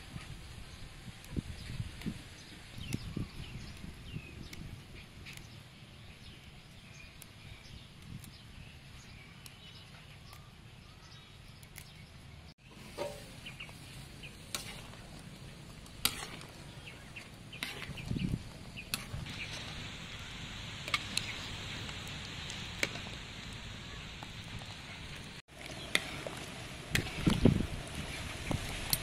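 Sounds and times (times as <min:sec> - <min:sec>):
water boiling hard: 0:12.6 - 0:29.0.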